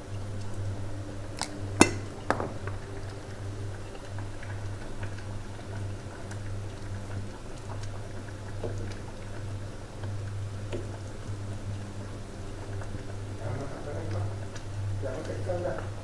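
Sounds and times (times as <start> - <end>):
gravy bubbling in a saucepan: 0.0 - 16.0
spoon clicking against pot: 1.4 - 2.1.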